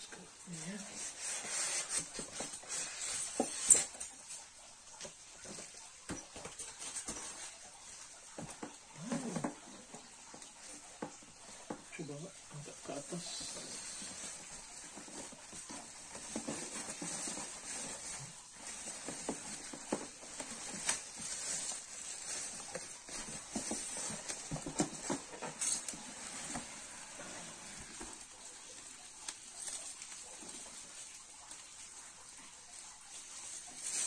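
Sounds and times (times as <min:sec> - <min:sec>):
cardboard carton rustling: 0:00.5 - 0:11.9, 0:12.6 - 0:30.8
steady hiss: 0:10.3 - 0:34.0
plastic wrapping crinkling: 0:12.7 - 0:27.0.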